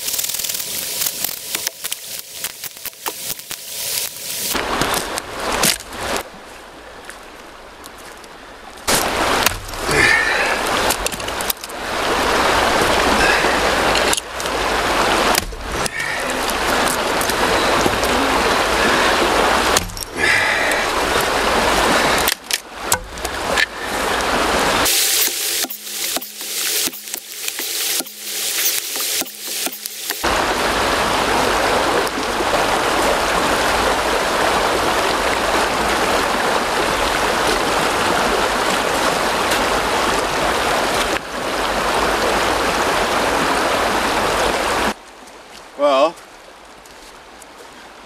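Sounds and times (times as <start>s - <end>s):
wood cracking: 0.0s - 4.2s
hatchet chopping wood: 19.8s - 20.0s, 22.9s - 23.2s, 24.9s - 30.3s
loud steady rushing noise: 24.5s - 31.7s.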